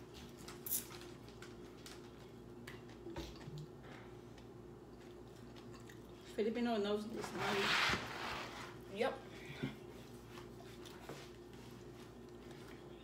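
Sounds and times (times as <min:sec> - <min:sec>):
chewing with crunches: 0:00.0 - 0:06.3
faint hum: 0:00.0 - 0:13.0.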